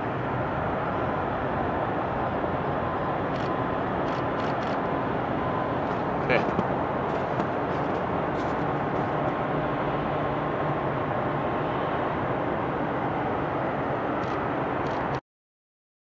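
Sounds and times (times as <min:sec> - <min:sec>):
faint high engine whine: 0:00.0 - 0:15.2
jet taxiing rushing noise: 0:01.9 - 0:11.0.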